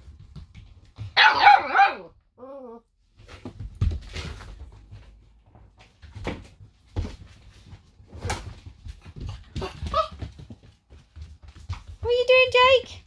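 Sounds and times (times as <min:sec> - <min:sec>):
puppies scuffling and playing: 0:00.0 - 0:01.6, 0:03.0 - 0:13.0
puppy yelp: 0:01.1 - 0:02.8, 0:09.6 - 0:10.2
knocks and thumps on floor: 0:03.2 - 0:12.8.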